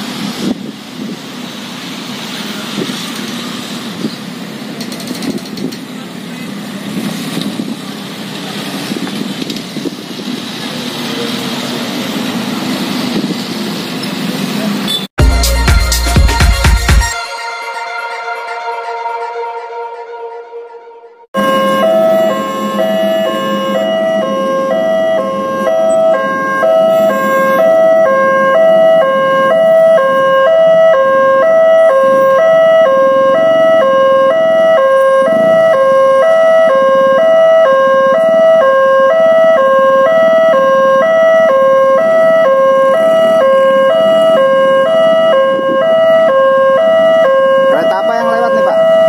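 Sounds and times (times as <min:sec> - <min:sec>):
level crossing alarm tones: 0:15.2 - 0:49.0.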